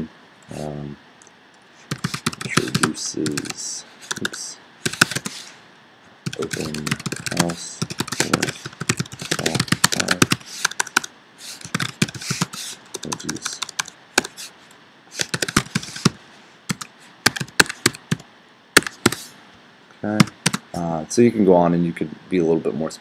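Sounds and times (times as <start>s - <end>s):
computer keyboard typing: 1.9s - 5.4s, 6.3s - 14.5s, 15.2s - 18.2s, 18.8s - 19.3s, 20.1s - 20.6s.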